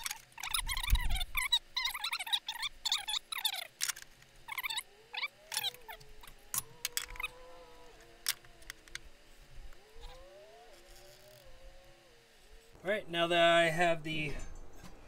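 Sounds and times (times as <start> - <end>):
marker squeaks: 0.0 - 3.8, 4.5 - 6.4.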